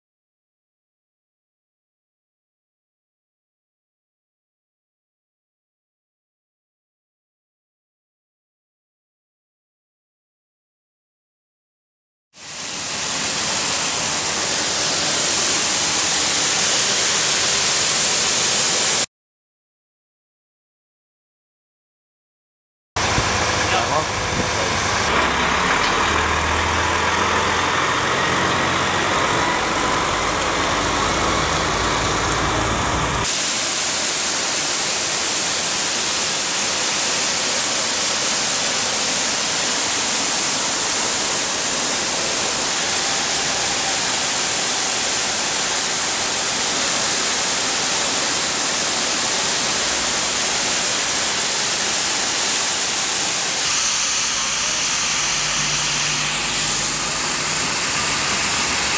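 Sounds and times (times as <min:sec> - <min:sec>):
loud suction hiss: 0:12.4 - 0:19.1, 0:28.6 - 0:58.9
truck engine running: 0:12.9 - 0:17.9, 0:23.0 - 0:33.3, 0:53.8 - 0:58.9.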